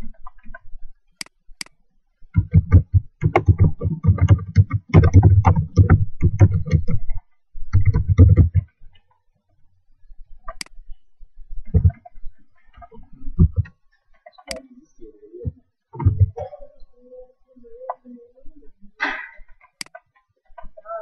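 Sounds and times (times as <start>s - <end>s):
laptop keyboard typing: 2.4s - 7.0s, 7.7s - 8.7s
mouse clicking: 2.4s - 7.0s, 14.4s - 14.8s
dull low thumps: 2.4s - 8.6s, 11.5s - 12.4s, 13.0s - 13.7s, 15.4s - 16.6s.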